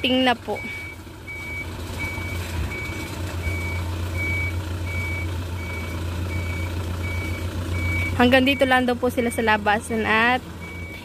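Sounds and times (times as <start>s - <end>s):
truck engine running: 0.0s - 11.0s
truck reversing alarm beeping: 0.0s - 11.0s.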